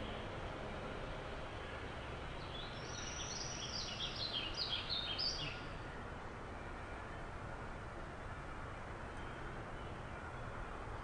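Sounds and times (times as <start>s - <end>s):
low background hiss: 0.0s - 11.0s
songbird chirping: 0.0s - 11.0s.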